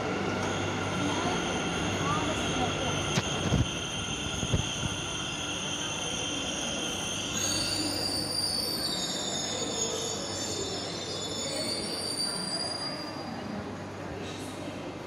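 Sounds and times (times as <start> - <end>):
train rumble: 0.0 - 6.4
train wheel squeal: 1.0 - 14.4.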